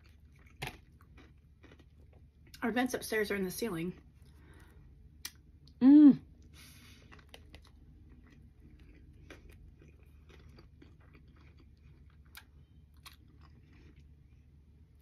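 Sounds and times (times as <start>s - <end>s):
close-up chewing: 0.0s - 2.6s, 6.4s - 15.0s
low steady hum: 0.0s - 15.0s.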